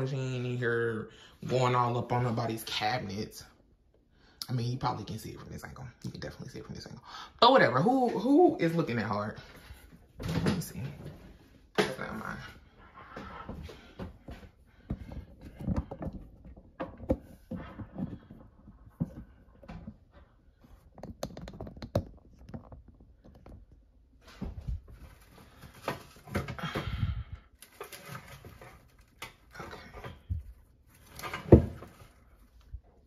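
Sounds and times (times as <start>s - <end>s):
objects knocking and clicking: 14.0s - 25.1s
rustling: 27.6s - 33.0s.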